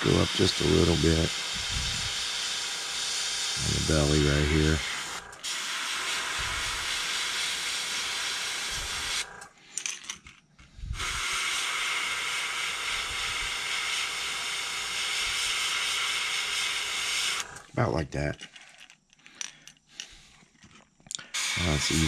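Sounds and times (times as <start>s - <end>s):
airbrush spraying hiss: 0.0s - 9.3s, 10.8s - 17.6s, 21.3s - 22.0s.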